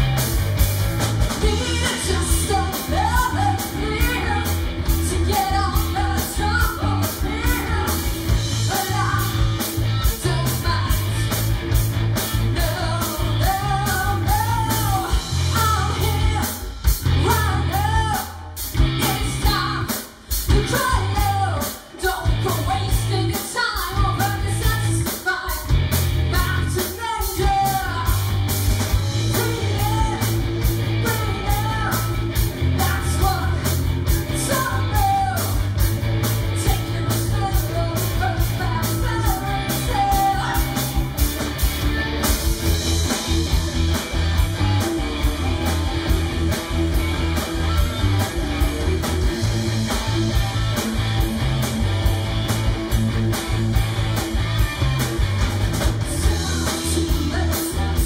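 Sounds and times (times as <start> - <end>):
bass guitar: 0.0 - 58.0
drum kit beat: 0.0 - 58.0
electric guitars: 0.0 - 58.0
woman singing: 1.4 - 11.3, 12.4 - 25.7, 26.3 - 28.2, 29.3 - 30.4, 31.0 - 35.6, 36.6 - 41.1, 56.2 - 58.0.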